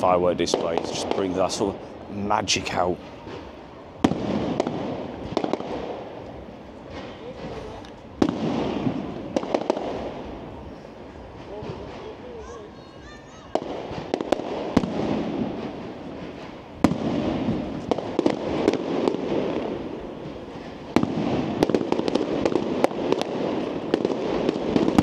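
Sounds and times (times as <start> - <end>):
fireworks crackle: 0.0 - 25.0
firework shells bursting bangs: 3.0 - 7.6, 8.2 - 10.5, 13.5 - 25.0.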